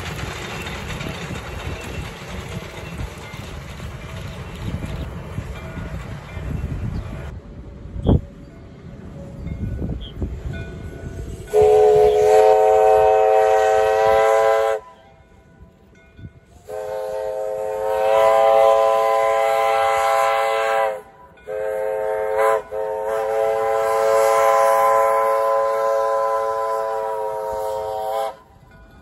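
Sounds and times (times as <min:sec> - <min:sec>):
faint train running noise: 0:00.0 - 0:29.0
steam locomotive whistle blasts: 0:11.1 - 0:15.1, 0:16.5 - 0:28.6.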